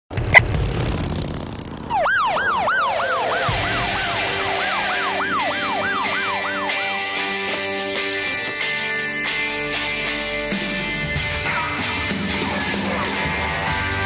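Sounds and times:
low vehicle rumble: 0.1s - 7.9s
police siren yelping: 1.9s - 8.9s
steady musical tones: 2.4s - 14.0s.

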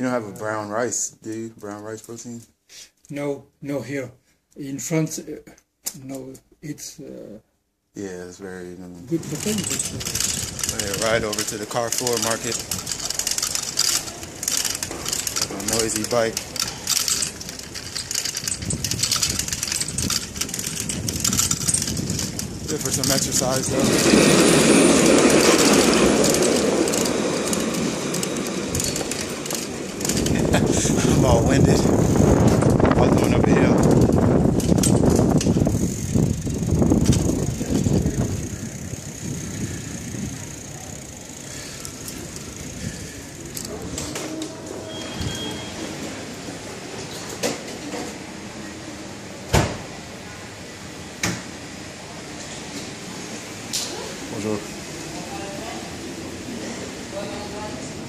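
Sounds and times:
indoor room noise: 0.0s - 58.0s
bicycle rattling: 9.1s - 45.8s.

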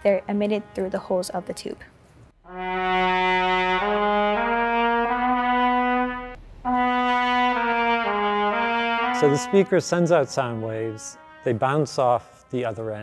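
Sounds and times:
solo trumpet slow notes: 2.4s - 13.0s.

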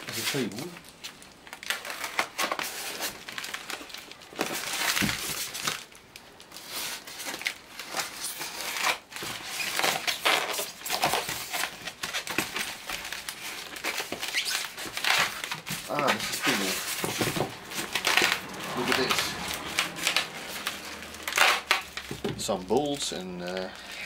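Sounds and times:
styrofoam scraping on cardboard: 6.6s - 22.0s.

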